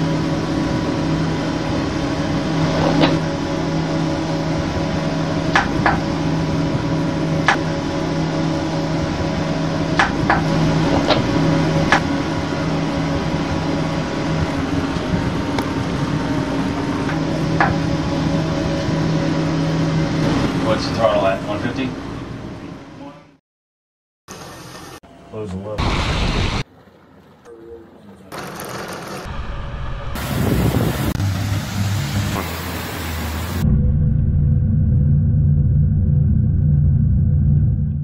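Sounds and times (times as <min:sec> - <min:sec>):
mechanical hum: 0:00.0 - 0:23.4
sharp clicks or knocks: 0:05.6 - 0:06.0.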